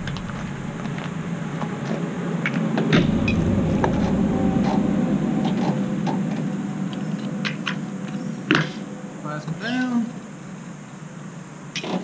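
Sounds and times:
low vehicle rumble: 0:00.0 - 0:09.1.

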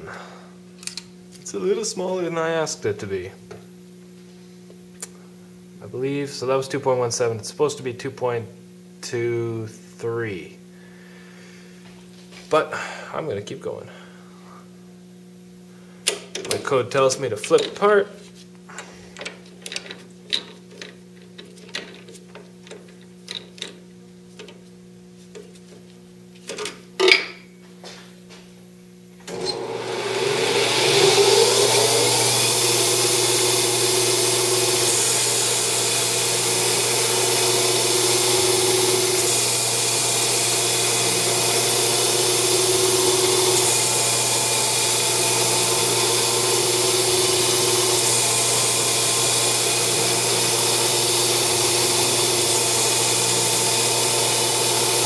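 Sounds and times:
lathe spindle running: 0:29.3 - 0:55.0
lathe tool cutting metal: 0:29.3 - 0:55.0.

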